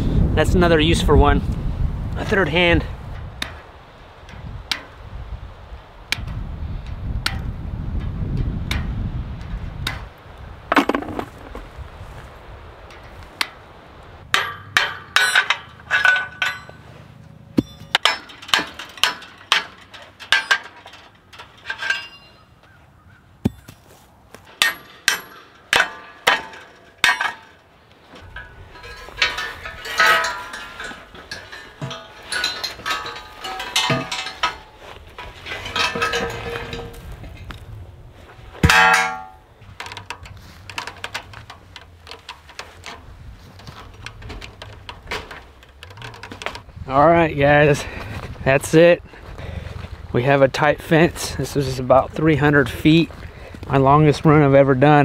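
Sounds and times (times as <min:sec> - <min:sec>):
metallic clanging with ringing: 0:14.2 - 0:22.8, 0:24.5 - 0:37.7, 0:38.4 - 0:43.0
hammer striking metal: 0:14.3 - 0:16.8, 0:17.6 - 0:20.7, 0:24.6 - 0:27.6, 0:38.6 - 0:39.5.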